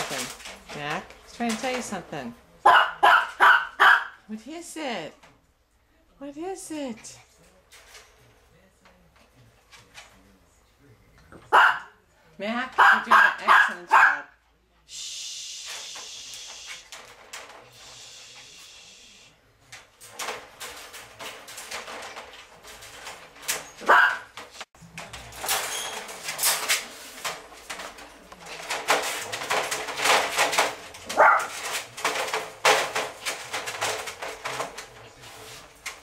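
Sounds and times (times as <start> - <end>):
puppies rattling wire crate: 0.0 - 2.1, 19.8 - 36.0.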